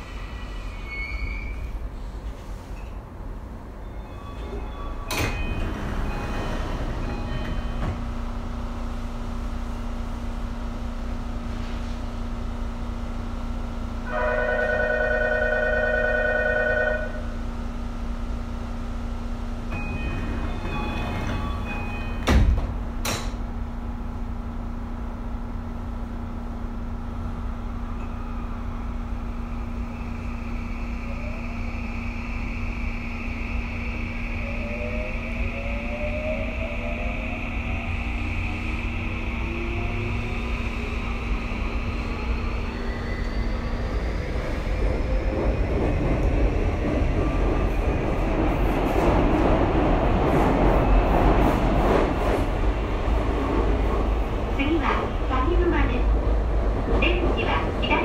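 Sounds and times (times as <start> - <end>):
train equipment hum: 0.0 - 58.0
train doors thudding shut: 5.0 - 8.1, 19.7 - 23.5.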